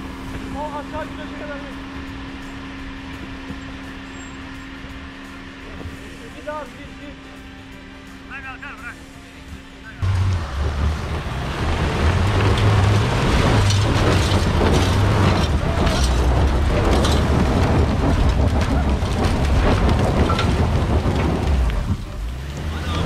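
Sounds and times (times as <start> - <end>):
diesel engine under load: 0.0 - 23.0
gravel clattering: 10.0 - 23.0.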